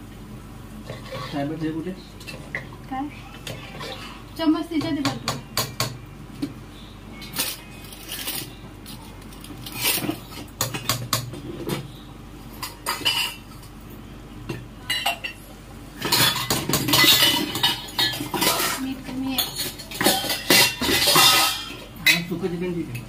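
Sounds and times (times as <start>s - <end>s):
spoons clinking on plates: 12.5s - 13.7s, 14.5s - 15.4s, 16.0s - 22.3s.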